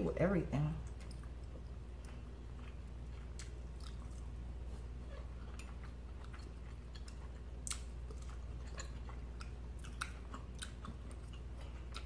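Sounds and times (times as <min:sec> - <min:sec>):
steady low hum: 0:00.0 - 0:12.0
chewing soft food: 0:00.8 - 0:12.0.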